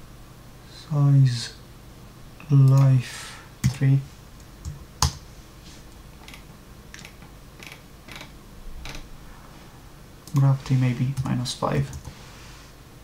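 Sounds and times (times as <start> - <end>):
keyboard and mouse clicks: 6.2 - 9.1, 10.2 - 10.5.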